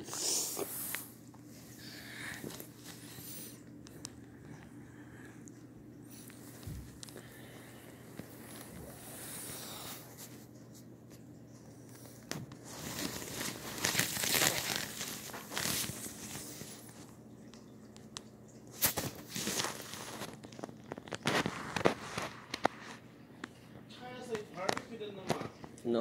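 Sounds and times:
fabric tunnel rustling: 0:12.6 - 0:16.6.

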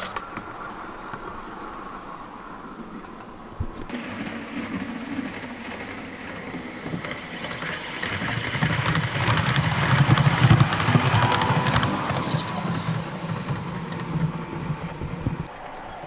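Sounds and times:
wheels clicking over rail joints: 0:00.0 - 0:16.0
model train motor humming: 0:03.9 - 0:15.5.

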